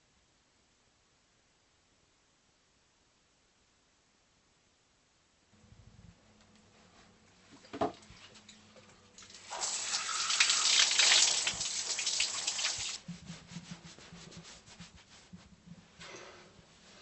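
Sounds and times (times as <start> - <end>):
water running from a tap: 9.1 - 13.0.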